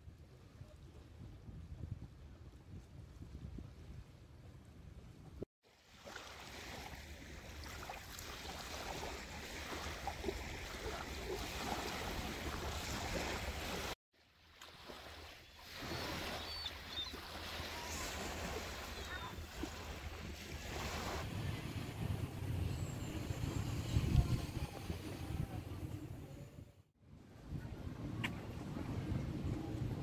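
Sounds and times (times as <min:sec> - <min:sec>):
wind on microphone: 0:00.0 - 0:05.4, 0:17.9 - 0:26.7, 0:27.3 - 0:30.0
small waves breaking on pebbles: 0:05.7 - 0:21.3.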